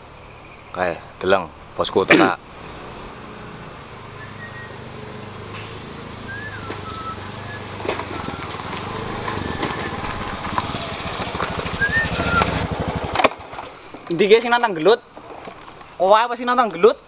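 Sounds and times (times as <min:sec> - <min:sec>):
scooter engine running: 0:02.6 - 0:13.8.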